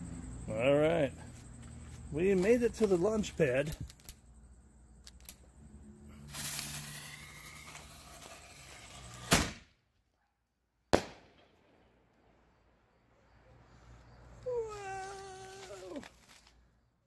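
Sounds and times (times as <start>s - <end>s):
firework launch bang: 6.3s - 9.7s, 10.9s - 12.0s
firework shell bursting: 6.3s - 9.7s, 10.9s - 12.3s.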